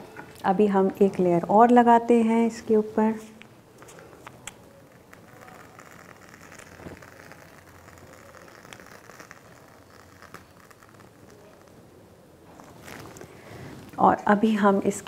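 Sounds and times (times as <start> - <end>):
whipped cream squishing from piping bag: 3.8 - 14.0.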